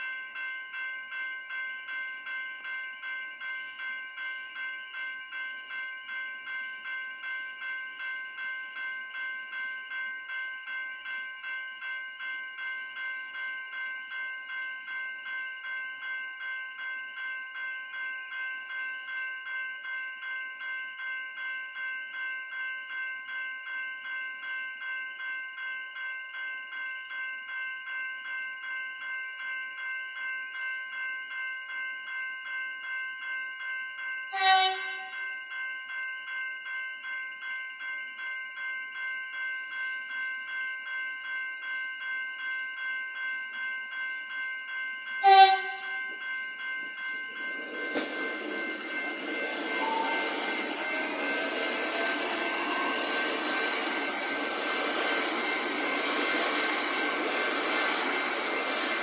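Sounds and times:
level crossing bell ringing: 0:34.2 - 0:59.0
train horn blasts: 0:34.3 - 0:35.1, 0:45.2 - 0:46.0.

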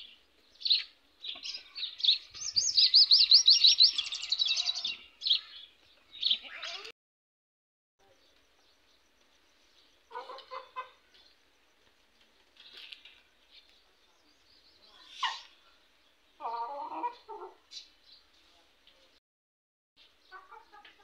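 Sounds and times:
chickens clucking: 0:10.1 - 0:11.2, 0:20.3 - 0:21.0.

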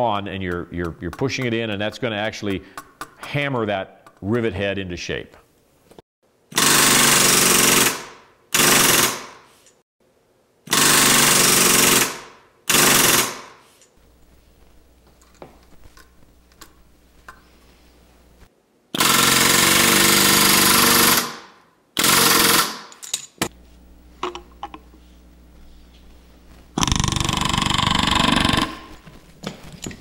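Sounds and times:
rivet gun hammering rivets into metal: 0:06.6 - 0:09.4, 0:10.7 - 0:13.6, 0:19.0 - 0:23.5.

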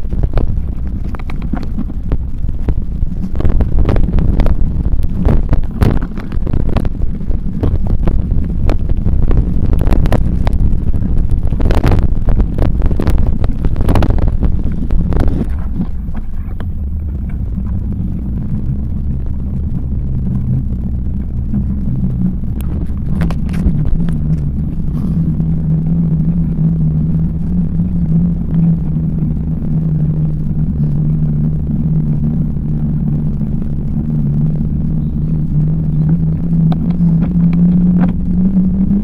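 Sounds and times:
bicycle knocking and rattling: 0:00.0 - 0:17.8
tyres rumbling on tarmac: 0:00.0 - 0:39.0
wind buffeting microphone: 0:00.0 - 0:39.0.

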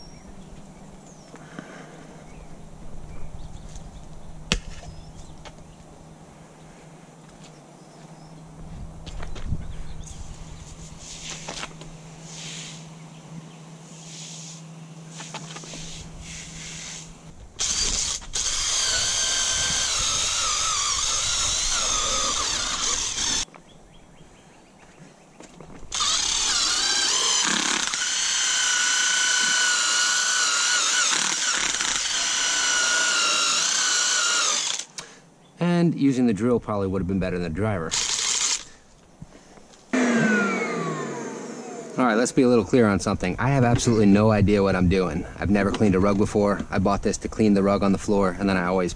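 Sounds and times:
power drill motor whining: 0:17.6 - 0:23.5, 0:25.9 - 0:35.0, 0:37.9 - 0:38.7, 0:40.0 - 0:42.0.

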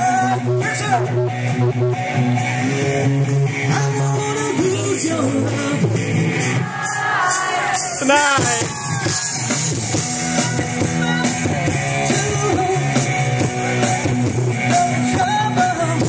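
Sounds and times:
live rock band: 0:00.0 - 0:16.0
person singing: 0:14.7 - 0:16.0.

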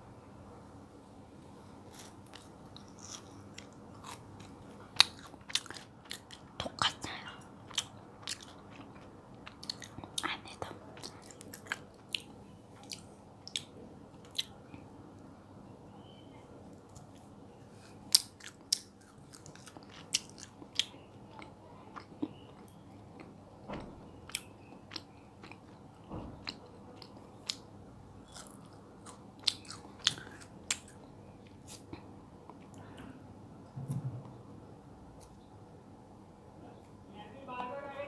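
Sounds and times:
chewing sticky jelly: 0:01.9 - 0:14.8, 0:18.1 - 0:23.4, 0:24.1 - 0:33.1.

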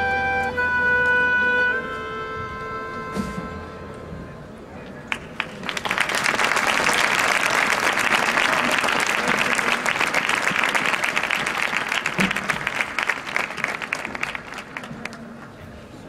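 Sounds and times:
crowd applauding: 0:05.1 - 0:15.6.

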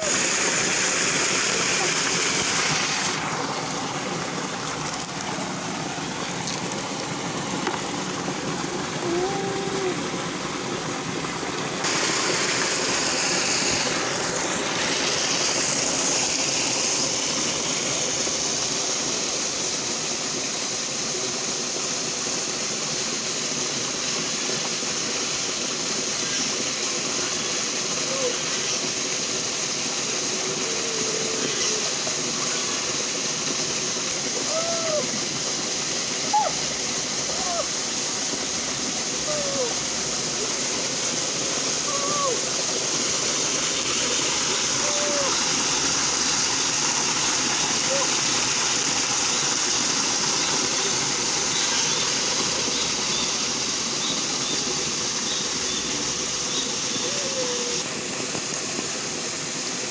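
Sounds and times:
stream water rushing: 0:00.0 - 0:59.9.

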